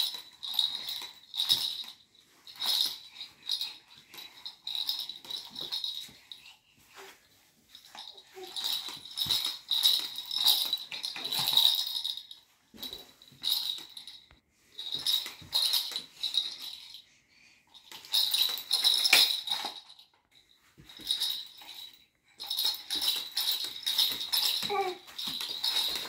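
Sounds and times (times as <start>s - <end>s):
plastic toy rattling and clicking: 22.4s - 26.0s.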